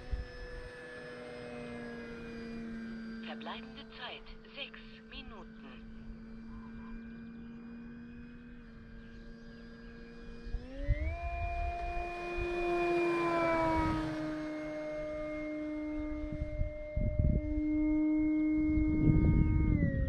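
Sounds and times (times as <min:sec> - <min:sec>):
model plane motor whining: 0:00.0 - 0:20.0
wind rumble on microphone: 0:10.3 - 0:12.8, 0:15.0 - 0:20.0.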